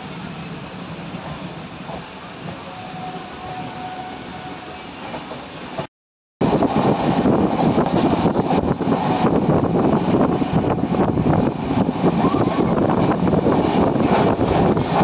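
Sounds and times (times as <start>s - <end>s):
train running rumble: 0.0s - 15.0s
wheel and rail clatter: 6.7s - 15.0s.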